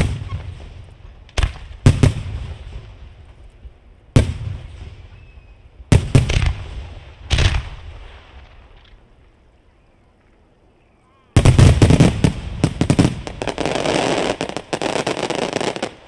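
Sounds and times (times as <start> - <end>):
firework shells booming: 5.9 - 8.9, 11.4 - 16.0.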